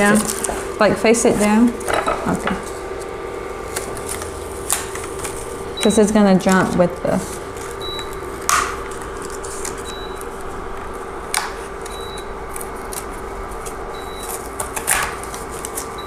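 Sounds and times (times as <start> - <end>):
cardboard tearing crackles: 0.0 - 0.7, 3.7 - 5.5, 8.4 - 10.3, 12.5 - 16.0.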